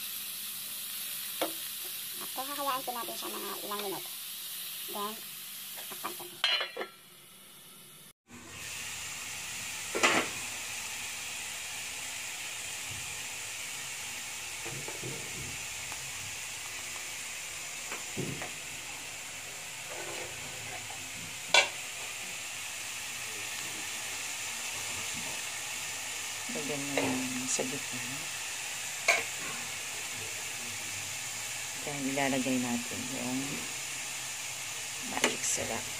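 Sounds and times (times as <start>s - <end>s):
vegetables sizzling in frying pan: 0.0s - 35.9s
spatula clinking on pan: 6.0s - 7.0s.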